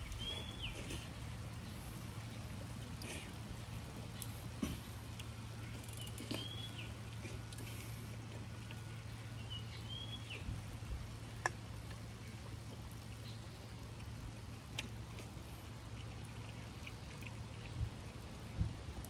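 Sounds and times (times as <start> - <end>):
steady low hum: 0.0 - 19.0
bird chirping call: 5.9 - 6.9.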